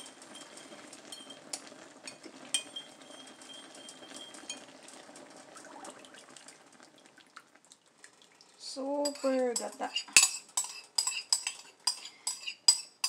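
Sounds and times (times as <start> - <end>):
bowl ringing: 2.6 - 4.7
metal spoon scraping ceramic bowl: 9.1 - 13.0.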